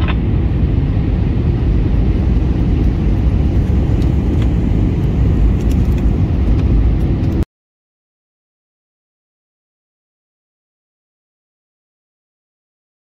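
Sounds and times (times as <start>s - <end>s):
jet engine cabin roar: 0.0s - 7.5s.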